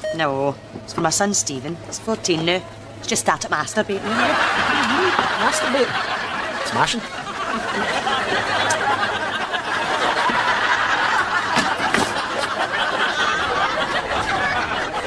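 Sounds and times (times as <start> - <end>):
studio audience laughing: 4.0 - 15.0.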